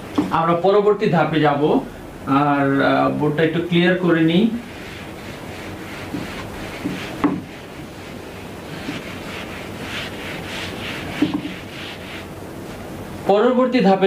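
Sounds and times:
board being wiped: 4.2s - 13.1s
short knocks: 6.1s - 7.5s.

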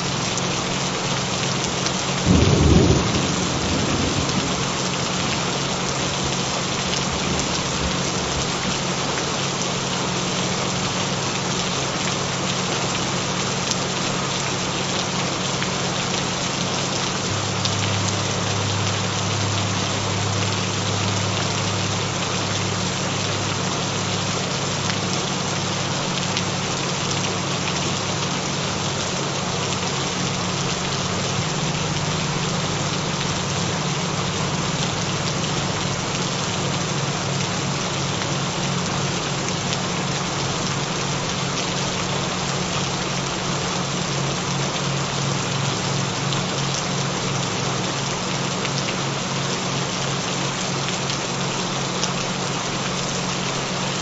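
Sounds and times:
gentle rainfall: 0.0s - 54.0s
low fluttering hum: 2.3s - 8.6s.

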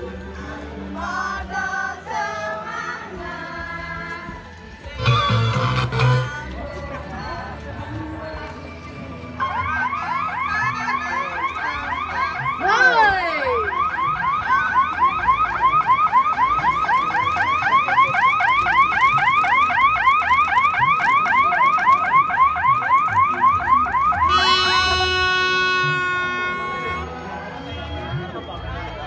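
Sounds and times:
sliding tone: 5.0s - 6.4s
steady horn-like tone: 5.0s - 6.4s, 24.3s - 27.2s
electronic siren yelping: 9.4s - 25.0s.

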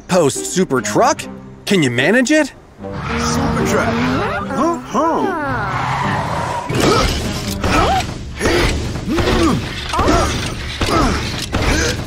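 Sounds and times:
background music: 0.0s - 12.0s
rising and falling tones: 2.8s - 6.7s
mechanical clicking and ratcheting: 9.5s - 12.0s.

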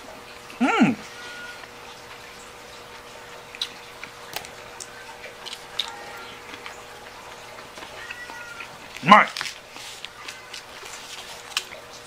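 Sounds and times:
faint steady hum: 0.0s - 12.0s
chewing: 2.8s - 12.0s.

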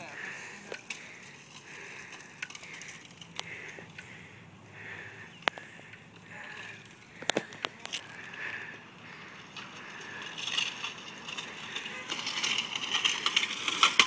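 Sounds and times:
bike tyres rolling on asphalt: 0.0s - 14.0s
light rattles: 0.0s - 14.0s.

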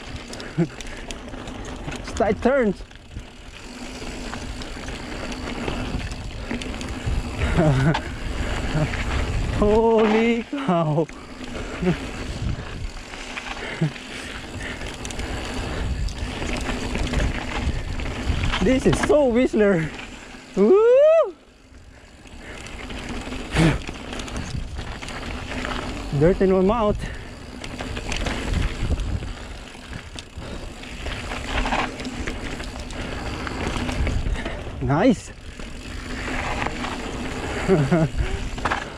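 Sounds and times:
bike rattling and rumbling: 0.0s - 38.9s
tyres rolling over dirt and gravel: 0.0s - 38.9s
tyres crunching over dirt and gravel: 22.0s - 38.9s.

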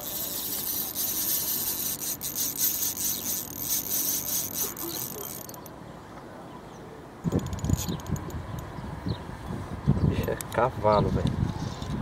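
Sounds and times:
spinning reel rasping: 0.0s - 5.7s.

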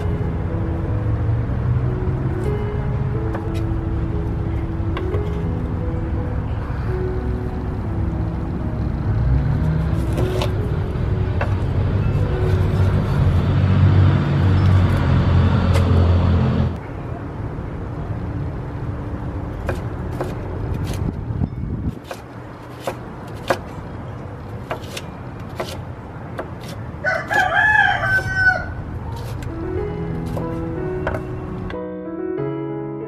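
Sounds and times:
loud low engine rumble: 0.0s - 31.8s
knife chopping on wooden board: 19.6s - 21.0s, 21.9s - 23.8s, 24.6s - 25.8s, 26.4s - 27.5s, 30.3s - 31.3s
rooster crowing: 27.0s - 28.8s.

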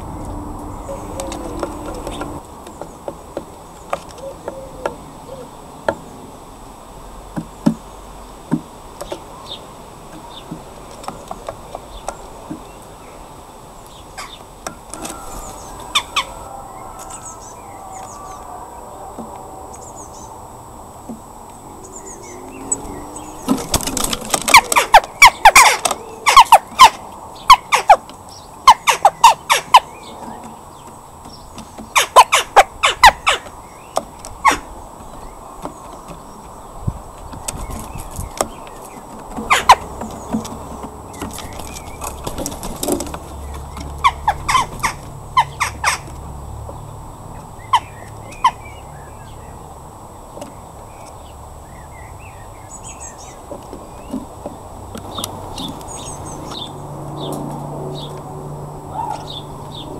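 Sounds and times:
bird pecking on wood: 1.0s - 5.0s, 23.3s - 28.2s, 28.9s - 45.2s.

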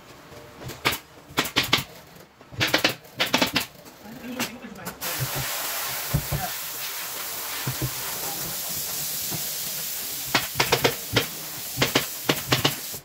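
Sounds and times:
steady air hiss: 5.0s - 13.0s.

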